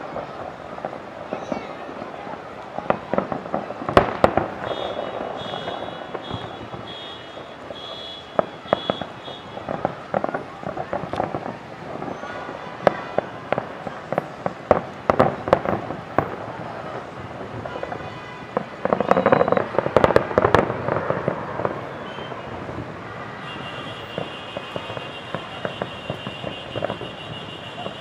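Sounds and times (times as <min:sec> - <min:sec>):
fireworks bangs and crackles: 0:00.0 - 0:28.0.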